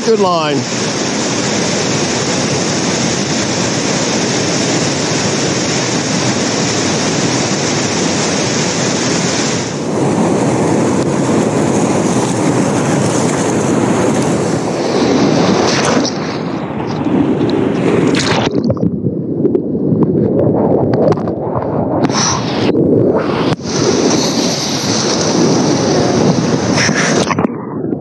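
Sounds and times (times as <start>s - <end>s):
whitewater river rushing over rocks: 0.0s - 18.6s, 23.2s - 27.4s.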